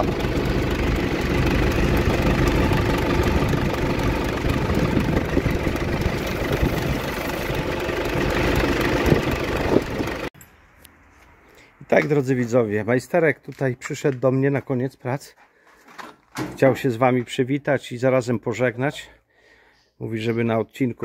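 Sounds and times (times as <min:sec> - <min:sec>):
tractor engine idling: 0:00.0 - 0:10.3.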